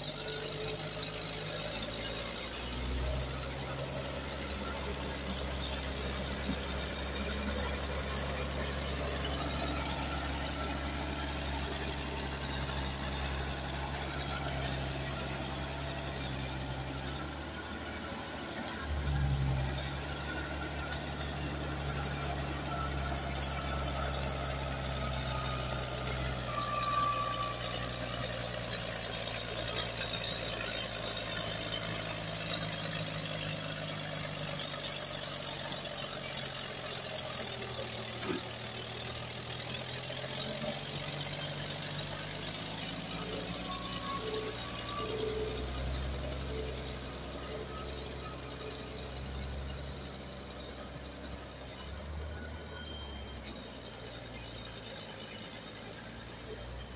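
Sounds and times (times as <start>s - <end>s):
bulldozer diesel engine running: 0.0s - 56.9s.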